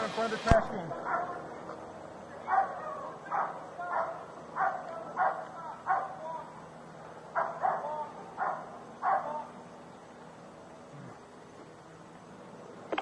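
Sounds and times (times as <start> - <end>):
dog barking: 0.9 - 1.4, 2.4 - 6.2, 7.3 - 9.5.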